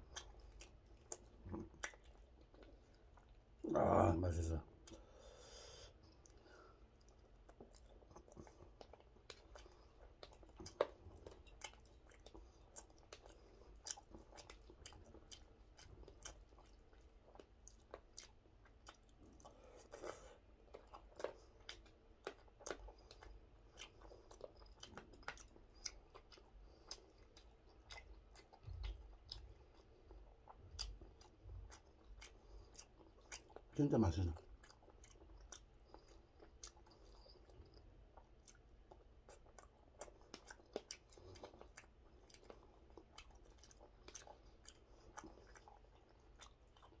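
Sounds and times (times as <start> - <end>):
man chewing food: 0.0 - 47.0.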